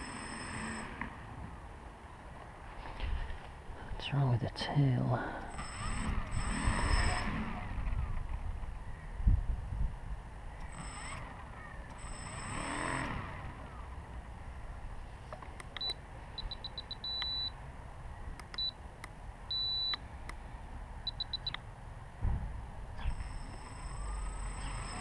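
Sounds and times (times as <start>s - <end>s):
radio transmitter beeping: 5.4s - 7.7s, 15.8s - 17.6s, 19.5s - 20.0s, 21.1s - 21.6s, 23.0s - 25.0s.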